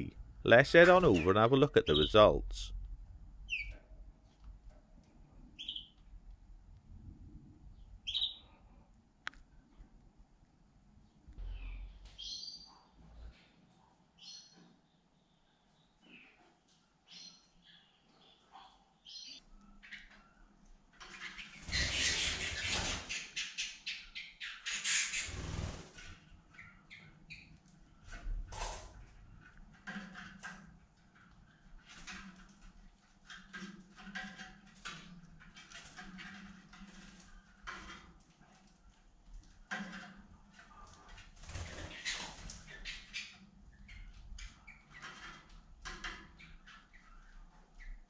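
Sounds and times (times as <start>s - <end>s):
canary chirping: 0.7s - 2.4s, 3.4s - 3.8s, 5.5s - 6.0s, 8.0s - 8.5s, 12.2s - 13.0s, 14.2s - 14.6s, 17.1s - 25.8s, 41.5s - 48.0s
canaries calling: 0.8s - 2.4s, 21.1s - 25.8s
wing flapping: 25.1s - 26.2s.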